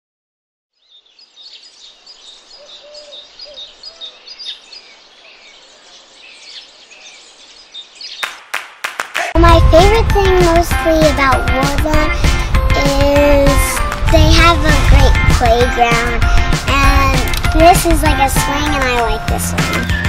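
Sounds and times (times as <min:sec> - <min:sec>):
birds chirping and singing: 0:00.8 - 0:08.4, 0:15.8 - 0:20.0
soft outdoor hiss: 0:00.8 - 0:09.0.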